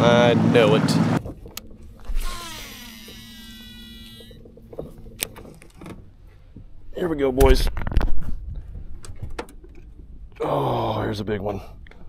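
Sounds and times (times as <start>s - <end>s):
fishing reel spool whirring: 1.5s - 5.6s.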